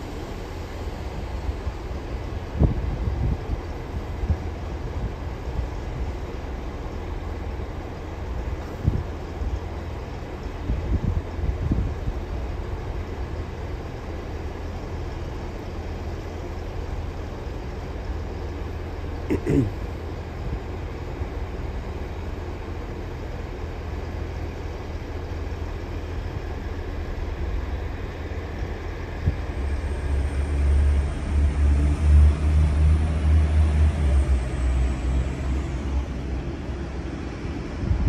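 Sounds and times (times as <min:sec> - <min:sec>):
train low rumble: 0:00.0 - 0:38.0.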